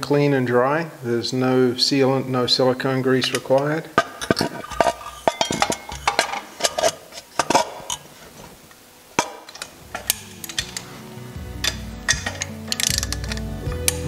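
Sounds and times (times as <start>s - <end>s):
metal engine parts clinking: 3.2s - 8.1s, 9.2s - 14.0s
background music: 9.5s - 14.0s.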